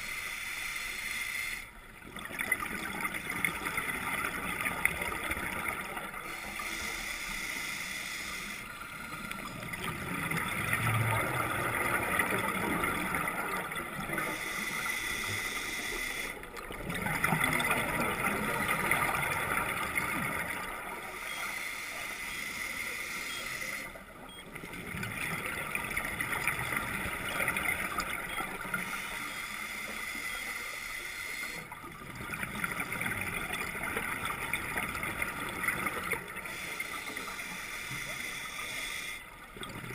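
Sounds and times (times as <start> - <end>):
exhaled bubbles gurgling: 1.8 - 7.6, 8.4 - 21.4, 22.0 - 30.4, 31.4 - 39.9
scuba regulator breathing underwater: 6.3 - 9.3, 14.2 - 16.4, 36.3 - 39.3.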